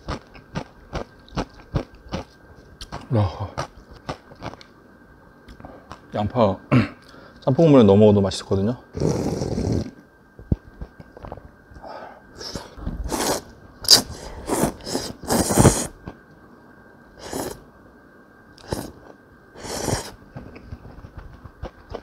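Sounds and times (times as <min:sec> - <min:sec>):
slurping noodles: 0:09.0 - 0:10.0, 0:12.4 - 0:15.9, 0:17.2 - 0:17.6, 0:18.6 - 0:20.2
person sipping broth: 0:12.4 - 0:15.9, 0:17.2 - 0:17.6, 0:18.6 - 0:20.2.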